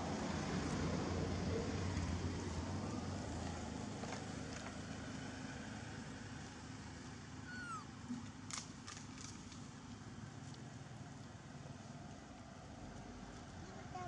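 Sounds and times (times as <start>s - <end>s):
monkey squeaking: 7.5s - 7.9s.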